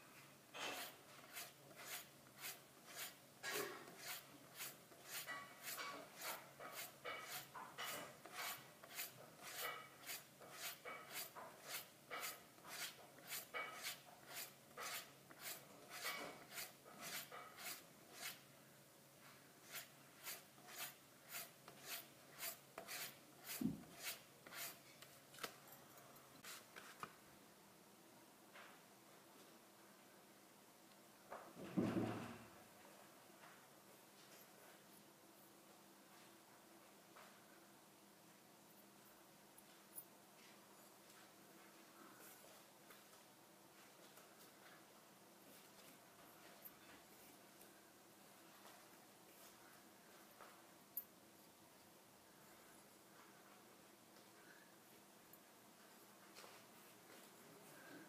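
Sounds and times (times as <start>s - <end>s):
razor stropping strokes: 0.6s - 3.2s, 3.9s - 18.4s, 19.6s - 24.8s
thump: 31.6s - 32.4s.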